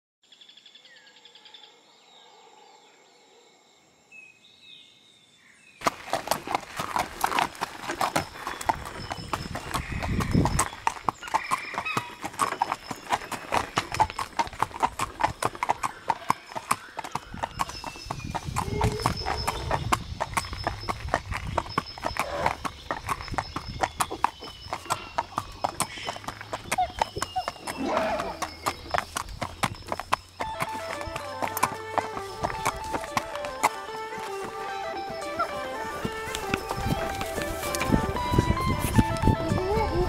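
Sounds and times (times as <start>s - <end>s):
horse hooves clip-clopping: 5.8s - 40.0s.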